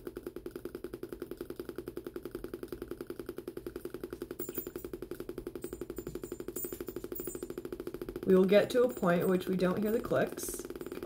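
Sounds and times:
small speaker clicking rapidly: 0.0s - 11.0s.

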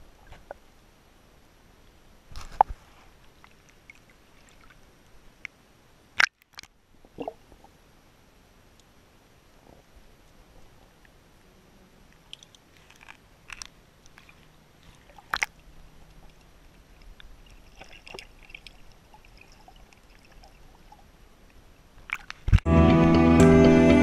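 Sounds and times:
music: 22.7s - 24.0s.

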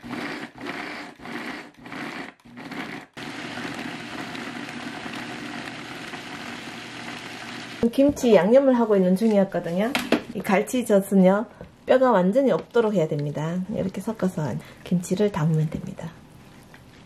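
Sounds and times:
blender grinding: 0.0s - 7.9s.

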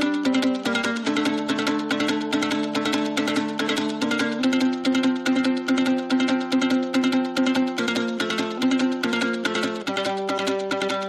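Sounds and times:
plucked string music: 0.0s - 11.0s.

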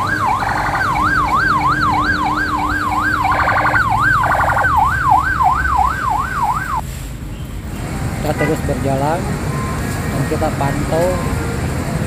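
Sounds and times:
ambulance siren yelping: 0.0s - 6.8s.

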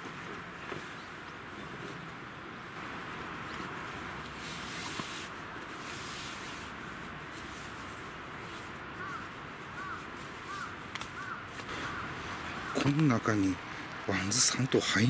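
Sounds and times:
sleeping bag rustling: 0.0s - 12.9s
rain hissing: 2.6s - 15.0s
bird calling: 8.5s - 14.0s.

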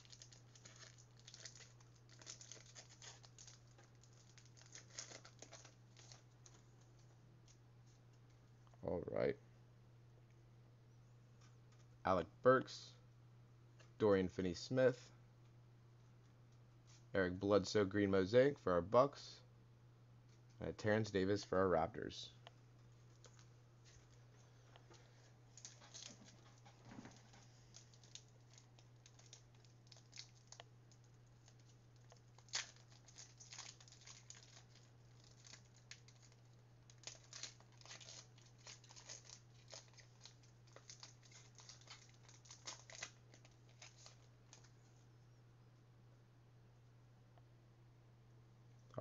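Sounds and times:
wrappers crinkling and tearing: 0.0s - 6.7s, 25.5s - 44.7s.

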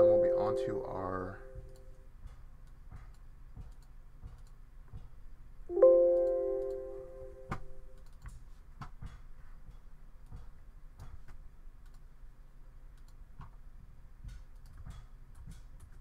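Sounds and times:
ringing chime: 0.0s - 1.6s.

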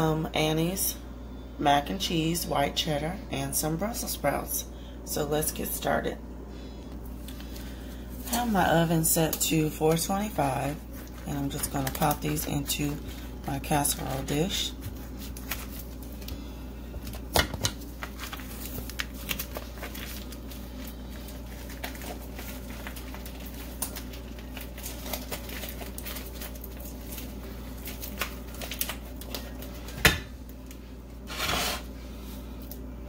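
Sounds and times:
plastic packaging crinkling: 7.4s - 16.4s, 17.0s - 31.8s.

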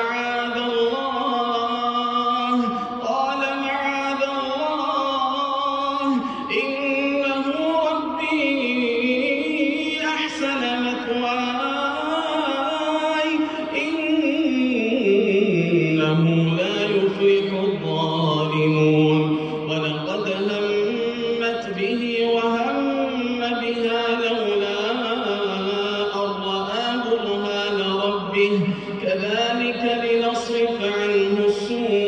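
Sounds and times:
man chanting melodically: 0.0s - 32.0s.

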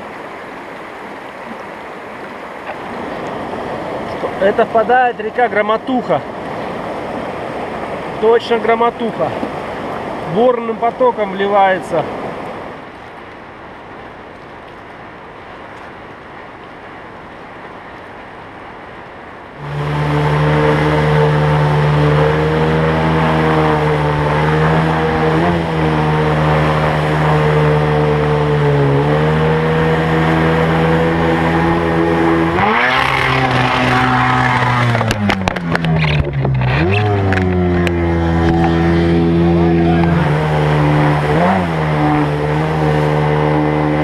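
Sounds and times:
rushing river water: 0.0s - 44.0s
outboard motor running hard: 19.6s - 44.0s.

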